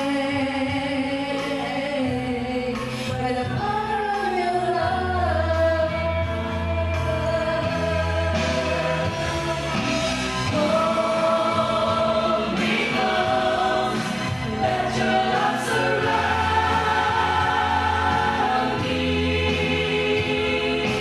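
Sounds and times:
group singing worship song: 0:07.0 - 0:21.0.

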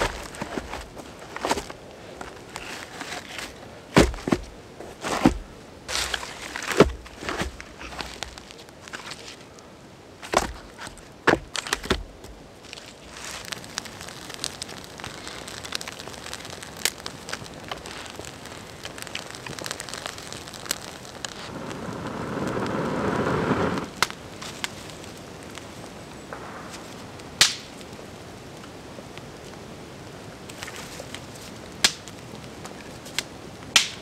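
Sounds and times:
campfire crackling and popping: 0:00.0 - 0:09.6, 0:10.2 - 0:34.0
loud sharp snap of fire: 0:13.5 - 0:25.6, 0:26.3 - 0:28.0, 0:31.8 - 0:32.2, 0:33.2 - 0:34.0
person blowing on flames: 0:21.3 - 0:24.0.

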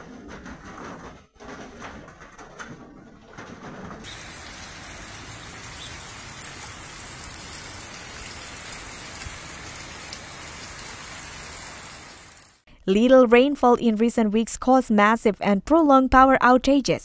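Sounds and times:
rain falling on flooded street: 0:04.0 - 0:12.6.

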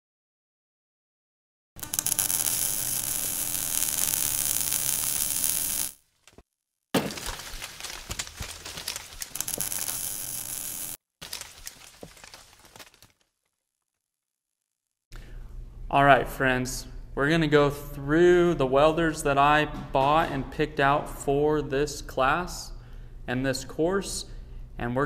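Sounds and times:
welding arc crackling: 0:01.8 - 0:06.0, 0:08.7 - 0:11.0.

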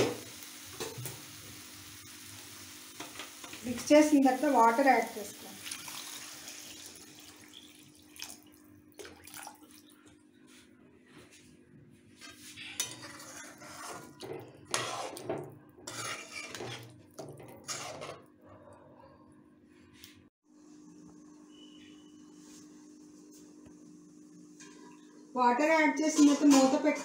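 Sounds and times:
metal spatula scraping a pan: 0:12.2 - 0:18.3, 0:26.0 - 0:27.0.

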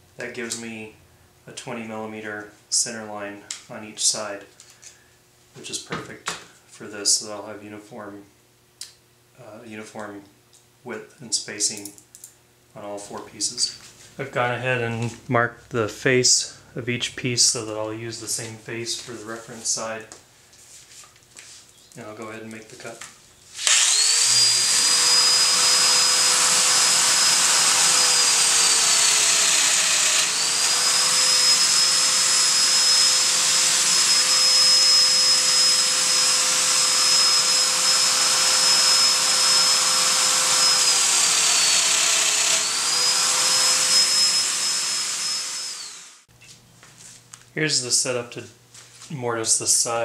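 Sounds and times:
dust extractor suction: 0:23.6 - 0:46.2
power tool whine: 0:23.6 - 0:46.3.

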